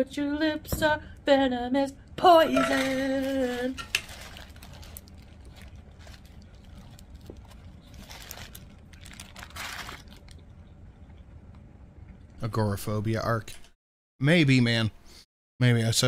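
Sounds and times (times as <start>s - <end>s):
paper wrapper crinkling: 3.1s - 10.5s
person chewing food: 4.4s - 12.3s.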